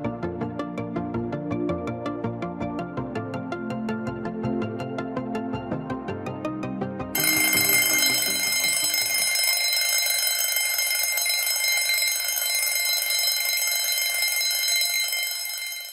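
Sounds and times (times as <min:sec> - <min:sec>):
background music: 0:00.0 - 0:09.5
alarm clock ringing: 0:07.2 - 0:15.9.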